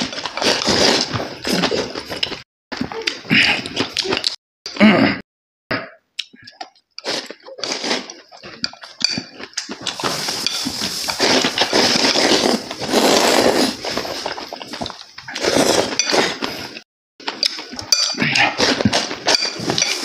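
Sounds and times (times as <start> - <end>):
slurping noodles: 0.0 - 2.4, 6.6 - 16.8.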